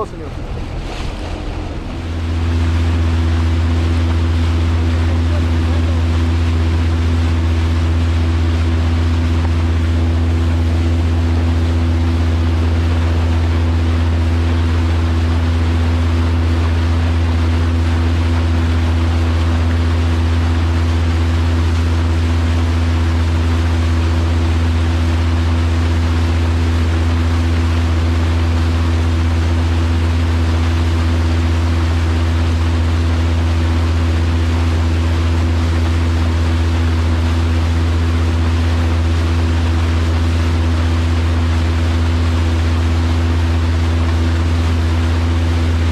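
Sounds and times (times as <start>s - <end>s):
wind noise: 0.0s - 4.8s
boat motor humming: 0.0s - 45.9s
water noise: 0.0s - 45.9s.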